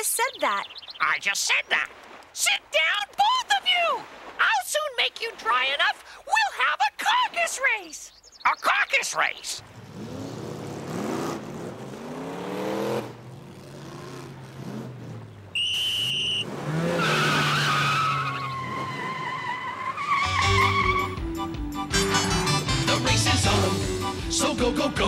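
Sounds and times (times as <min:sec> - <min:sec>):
short high whistle blast: 0:15.6 - 0:16.4
cartoon race car revving: 0:16.3 - 0:19.4
music with a beat: 0:21.2 - 0:25.0.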